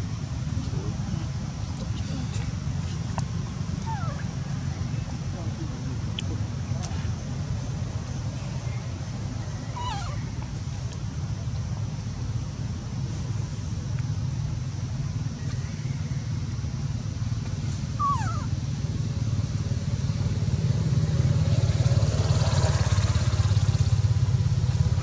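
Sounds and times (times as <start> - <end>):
low engine rumble: 0.0 - 25.0
baby monkey squeak: 3.8 - 4.3, 9.7 - 10.2, 18.0 - 18.5.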